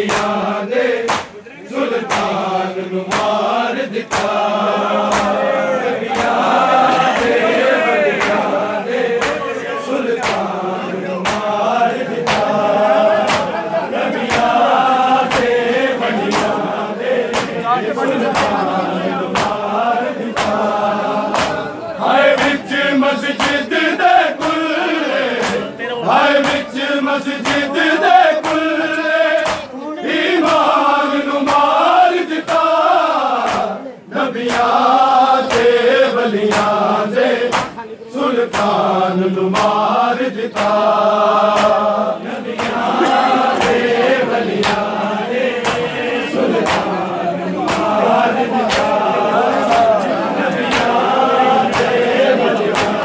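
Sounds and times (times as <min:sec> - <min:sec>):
men chanting a lament: 0:00.0 - 0:53.0
hands striking chests: 0:11.2 - 0:11.5, 0:13.2 - 0:13.5, 0:17.3 - 0:17.6.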